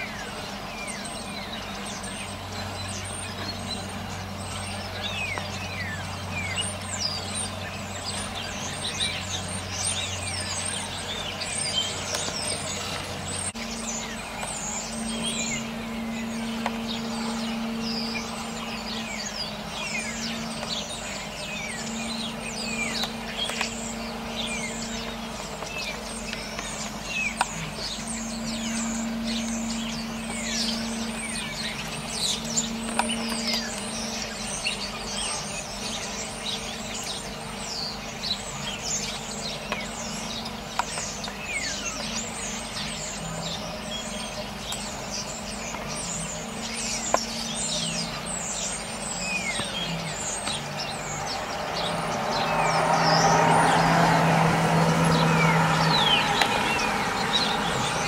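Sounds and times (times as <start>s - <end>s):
low steady hum: 0.0s - 58.0s
starlings chattering: 0.0s - 58.0s.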